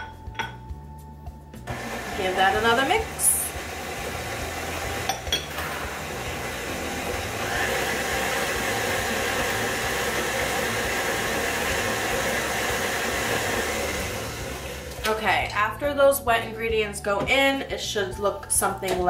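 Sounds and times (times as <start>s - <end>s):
stand mixer motor running: 1.7s - 15.0s.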